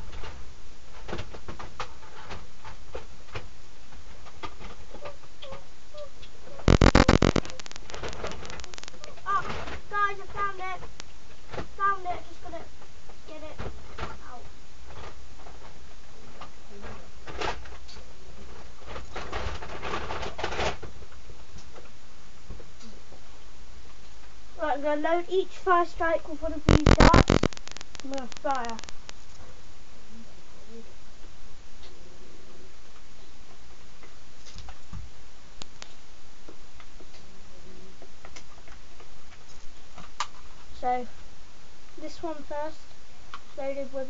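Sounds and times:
rustling and handling noise: 0.0 - 29.7
steady hiss: 0.0 - 44.0
steady low hum: 0.0 - 44.0.

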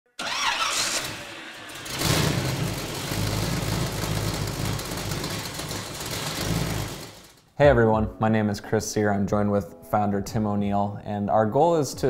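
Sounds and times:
rally car engine running: 0.7 - 7.4.

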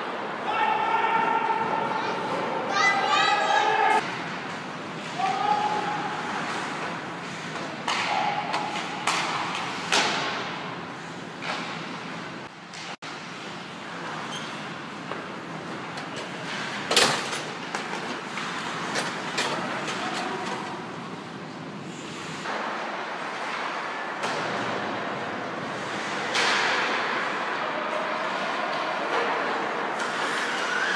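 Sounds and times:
skates scraping ice: 4.0 - 16.9, 17.5 - 30.9
pucks and sticks knocking boards: 6.3 - 10.7, 25.8 - 27.6.

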